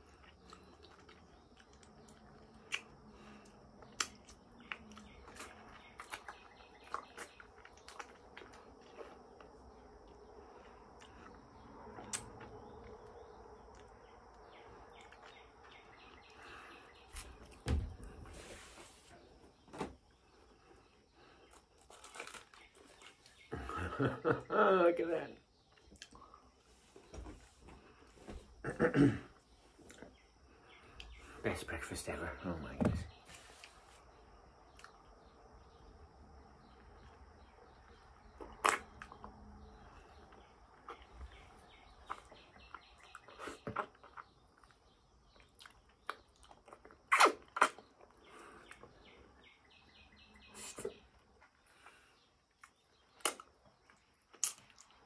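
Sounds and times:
mouth eating sounds: 43.0s - 48.9s
small mouth clicks: 45.6s - 47.9s
sharp loud mouth sound: 47.1s - 47.8s.

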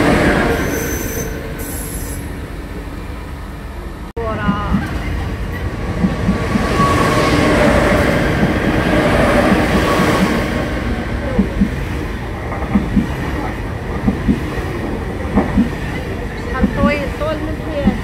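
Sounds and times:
train rumbling past: 0.0s - 18.0s
faint high squeal: 0.6s - 2.4s
wheels clacking over rail joint: 11.2s - 18.0s.

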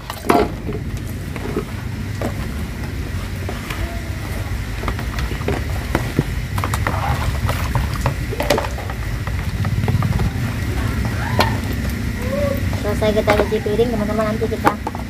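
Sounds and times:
plastic dishes clattering in water: 0.0s - 3.8s, 4.5s - 12.0s
sponge scrubbing plastic: 0.0s - 15.0s
steady low rumble: 0.0s - 15.0s.

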